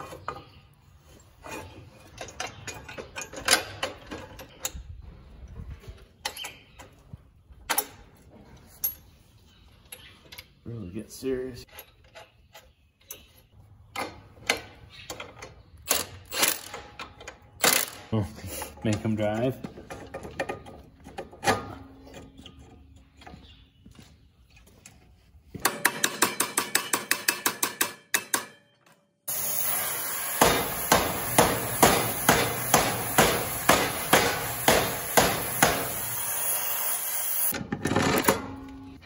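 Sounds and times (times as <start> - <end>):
hammer striking steel: 29.3 - 36.3
steady hiss: 29.3 - 37.5.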